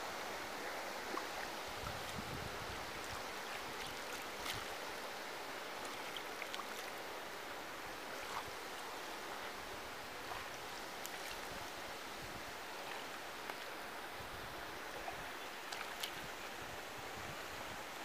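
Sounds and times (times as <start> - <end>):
pool water splashing: 0.0 - 18.0.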